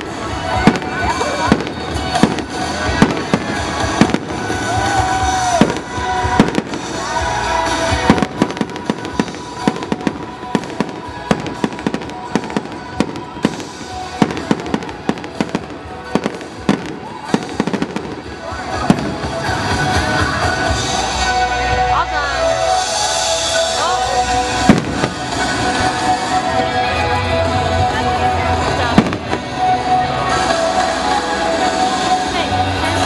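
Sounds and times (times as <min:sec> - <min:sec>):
fireworks bursting bangs: 0:00.0 - 0:20.8, 0:24.2 - 0:26.9, 0:28.6 - 0:31.0.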